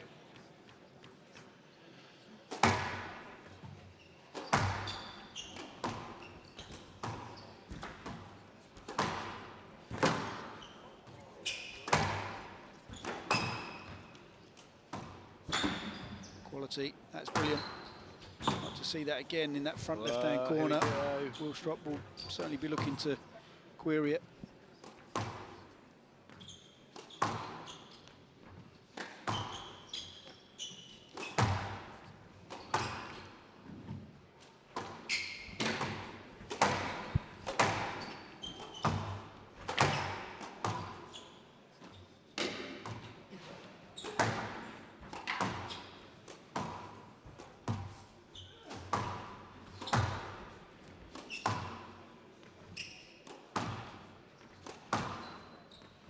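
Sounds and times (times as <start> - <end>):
squash ball hitting rackets and walls: 2.5 - 16.2, 17.2 - 18.8, 20.6 - 21.1, 22.3 - 23.1, 24.8 - 25.7, 26.3 - 41.2, 41.9 - 55.8
shoe squeaks: 3.8 - 7.8, 10.3 - 12.2, 12.8 - 14.6, 15.4 - 16.6, 17.2 - 19.0, 19.6 - 23.0, 26.3 - 28.2, 29.2 - 31.6, 35.0 - 35.7, 37.1 - 42.4, 43.9 - 46.1, 48.0 - 51.8, 52.7 - 53.3, 54.6 - 56.0.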